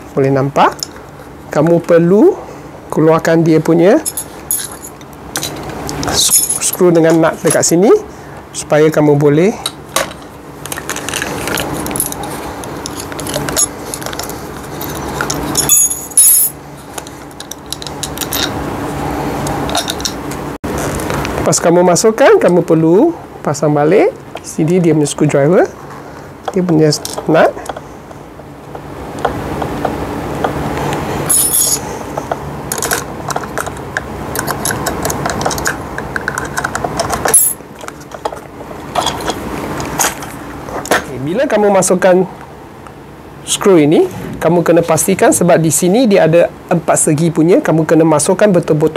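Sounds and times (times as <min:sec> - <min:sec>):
screw and nut clinking: 0:11.1 - 0:16.6, 0:31.3 - 0:31.8
metallic jingle: 0:15.5 - 0:16.6, 0:31.3 - 0:31.8
screw and nut clinking on metal: 0:31.3 - 0:31.8.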